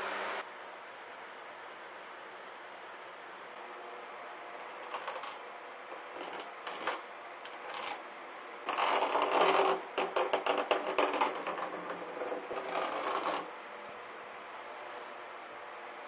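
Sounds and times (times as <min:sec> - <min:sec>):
faint steady hum: 0:00.0 - 0:16.0
plastic rubbing and scraping: 0:04.7 - 0:08.0, 0:08.7 - 0:13.5.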